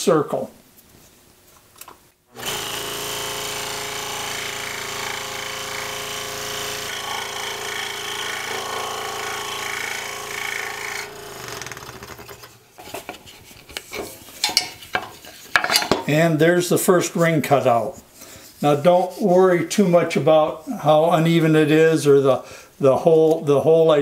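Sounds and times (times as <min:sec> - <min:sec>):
scroll saw cutting wood: 0:02.4 - 0:13.2.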